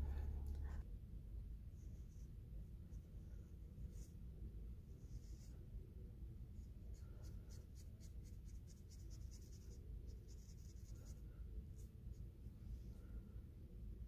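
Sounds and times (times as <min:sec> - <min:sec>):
paintbrush stroking paper: 0:05.0 - 0:05.6, 0:06.6 - 0:12.3.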